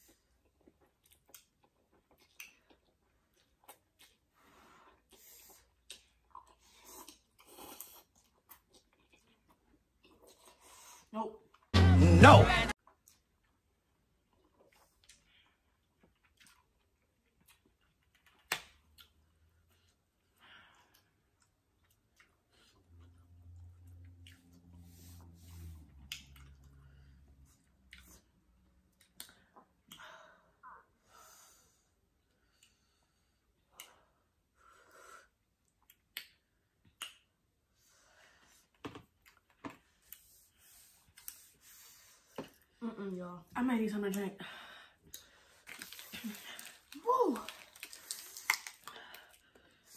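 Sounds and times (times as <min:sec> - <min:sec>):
mouth clicks and smacks chewing: 0:14.2 - 0:19.3, 0:35.6 - 0:37.4
mouth clicks and smacks: 0:35.6 - 0:37.5.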